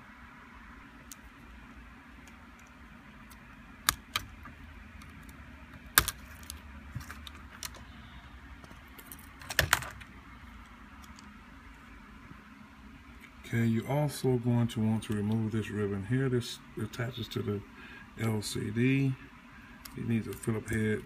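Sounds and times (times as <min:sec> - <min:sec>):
faint steady hum: 0:00.0 - 0:21.0
laptop parts clicking and tapping: 0:02.2 - 0:07.9, 0:08.6 - 0:11.4.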